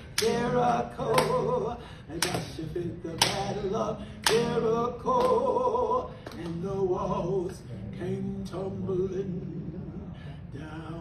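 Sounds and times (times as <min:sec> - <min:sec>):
woman singing gospel unaccompanied: 0:00.0 - 0:11.0
hand claps: 0:00.1 - 0:00.4, 0:01.0 - 0:01.5, 0:02.2 - 0:03.6, 0:04.2 - 0:05.5, 0:06.2 - 0:06.6.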